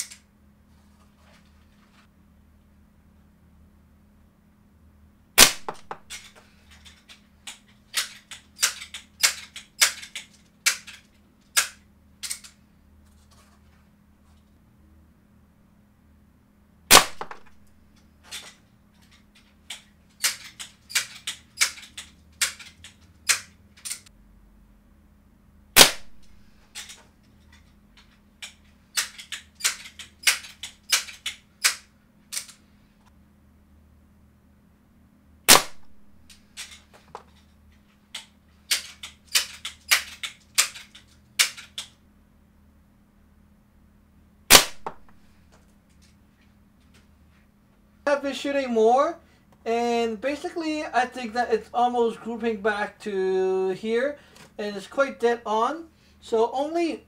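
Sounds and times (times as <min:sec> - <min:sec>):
air pistol shots: 0:05.4 - 0:06.3, 0:16.9 - 0:17.6, 0:25.8 - 0:26.3, 0:35.5 - 0:36.0, 0:44.5 - 0:45.1.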